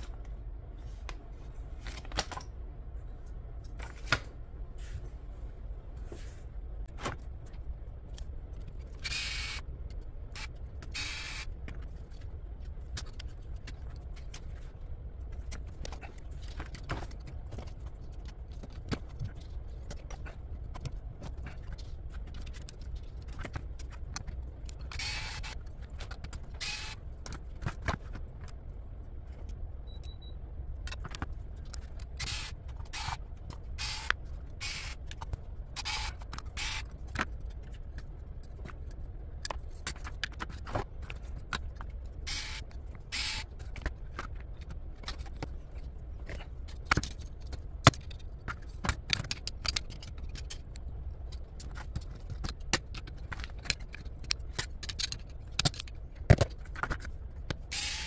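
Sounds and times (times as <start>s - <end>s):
low steady hum: 0.0s - 58.0s
plastic and metal parts clicking: 46.2s - 58.0s.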